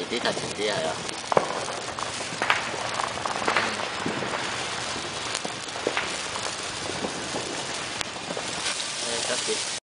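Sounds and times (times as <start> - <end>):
firework hissing and crackling: 0.0 - 9.9.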